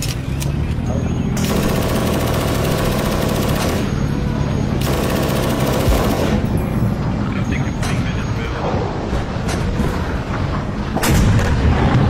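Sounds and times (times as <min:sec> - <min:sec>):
automatic machine-gun fire: 0:01.4 - 0:03.9, 0:04.8 - 0:06.4
low rumble: 0:08.5 - 0:12.0.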